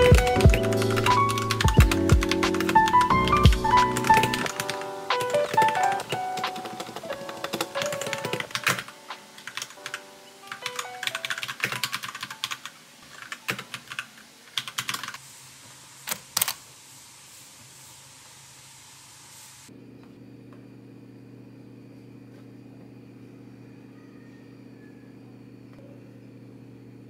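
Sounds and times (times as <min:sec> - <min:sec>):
soft background music: 0:00.0 - 0:13.6
mechanical keyboard typing: 0:00.0 - 0:15.2.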